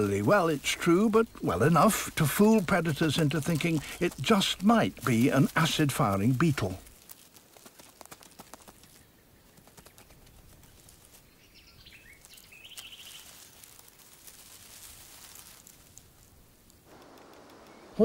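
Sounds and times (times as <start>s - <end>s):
steady hiss: 13.2s - 18.0s.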